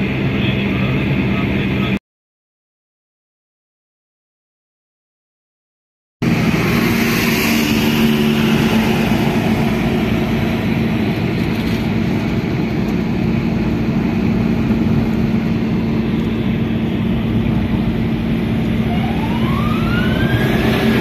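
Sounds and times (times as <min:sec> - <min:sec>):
car engine hum: 0:00.0 - 0:02.0, 0:06.2 - 0:21.0.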